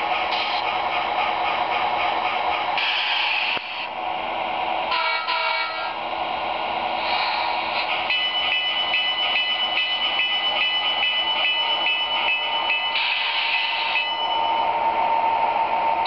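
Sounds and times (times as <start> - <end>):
locomotive horn blast: 4.9 - 6.0
bell ringing steadily: 8.0 - 14.7.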